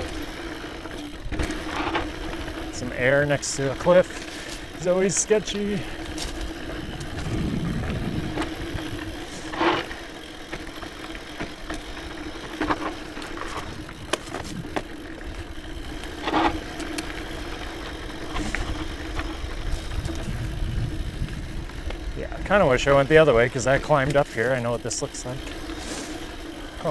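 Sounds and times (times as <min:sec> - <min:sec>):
mountain bike tyre and drivetrain rattle: 0:00.0 - 0:26.9
bike knocking over bumps: 0:06.0 - 0:24.3.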